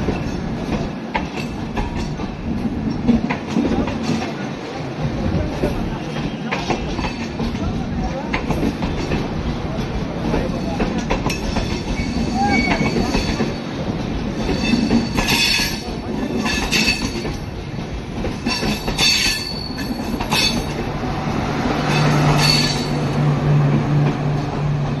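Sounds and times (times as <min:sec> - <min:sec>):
train wheels clattering: 0:00.0 - 0:04.4, 0:05.4 - 0:25.0
train wheels rumbling on rails: 0:00.0 - 0:25.0
metallic wheel squeals: 0:11.8 - 0:13.4.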